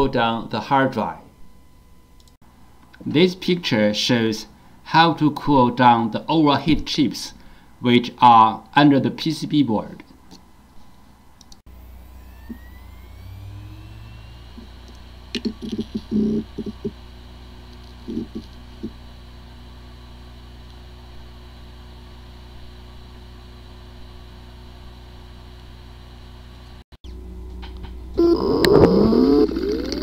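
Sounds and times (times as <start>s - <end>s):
hard drive spinning up and whirring: 11.7s - 30.0s.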